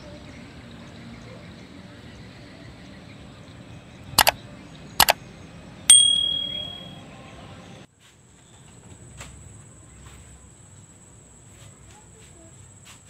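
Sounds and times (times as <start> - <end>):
bell notification ding: 5.9 - 6.9.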